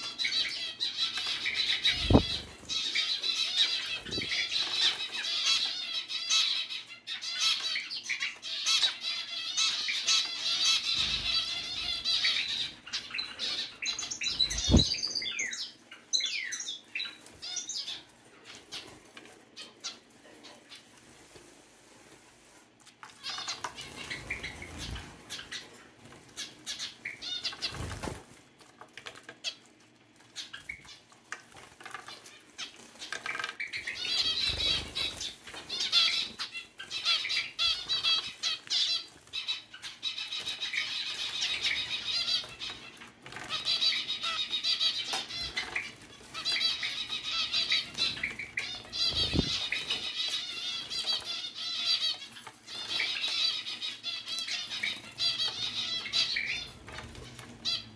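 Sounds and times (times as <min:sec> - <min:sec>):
finch calls and chatter: 0:00.0 - 0:21.0, 0:22.4 - 0:28.3, 0:29.0 - 0:57.9
wings fluttering and splashing water: 0:23.0 - 0:44.2, 0:45.2 - 0:51.3.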